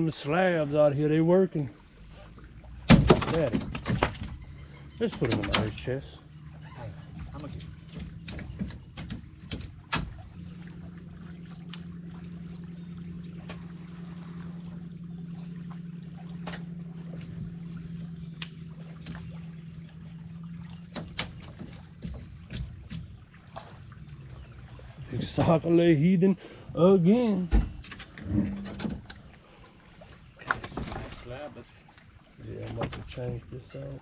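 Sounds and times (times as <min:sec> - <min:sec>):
sharp clicks: 0:05.0 - 0:06.0, 0:18.4 - 0:19.2.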